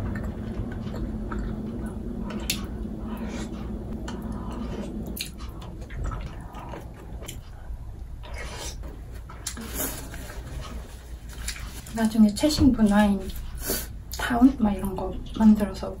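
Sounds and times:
chewing and mouth sounds: 0:00.0 - 0:11.9
low steady hum: 0:00.0 - 0:16.0.

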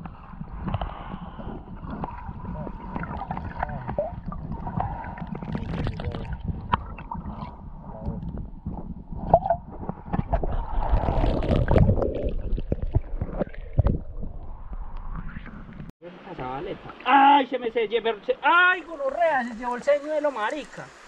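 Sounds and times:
muffled underwater gurgling: 0:00.0 - 0:13.4
knocks underwater: 0:00.0 - 0:15.9.

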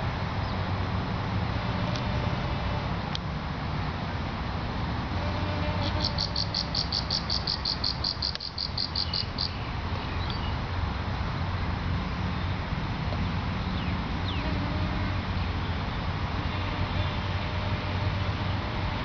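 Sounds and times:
rapid high chirps: 0:05.9 - 0:09.6.

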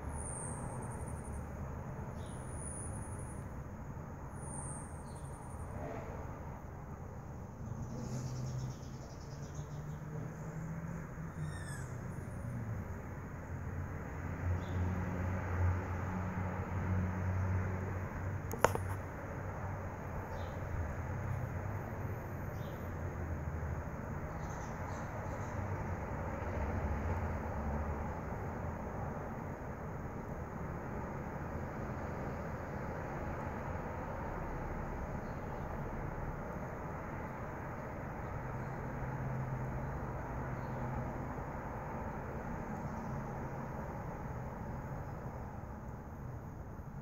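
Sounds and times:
hummingbird high thin call: 0:11.4 - 0:12.0
sharp click: 0:18.5 - 0:19.0.

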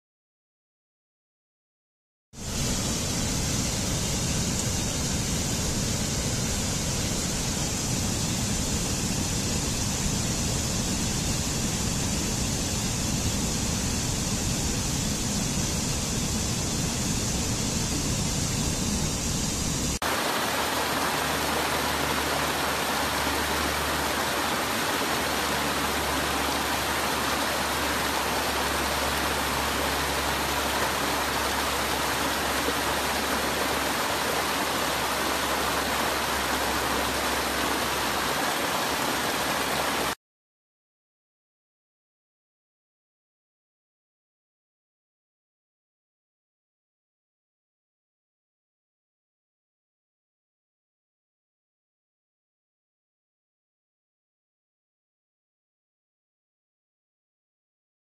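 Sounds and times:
water rushing over rocks: 0:20.0 - 0:40.2.

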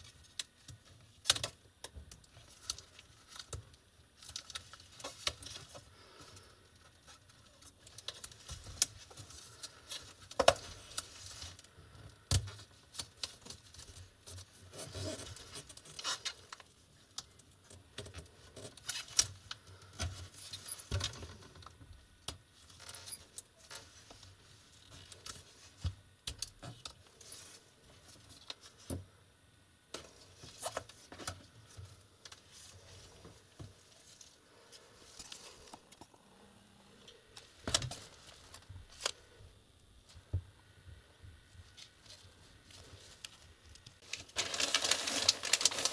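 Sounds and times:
tape rustling: 0:00.0 - 0:21.7, 0:29.9 - 0:36.2, 0:36.9 - 0:39.4, 0:41.6 - 0:45.9.

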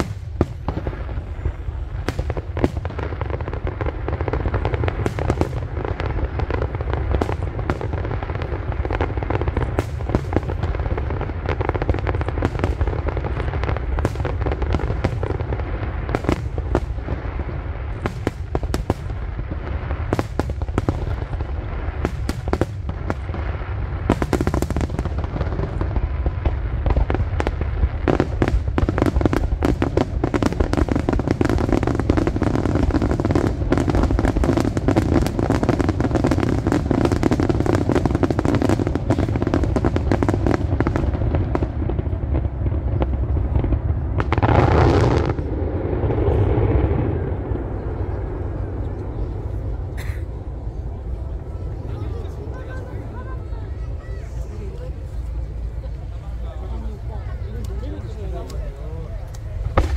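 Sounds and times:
fireworks bangs: 0:00.0 - 0:59.9
fireworks crackling pops: 0:00.0 - 0:59.9
low rumble: 0:40.6 - 0:59.9.

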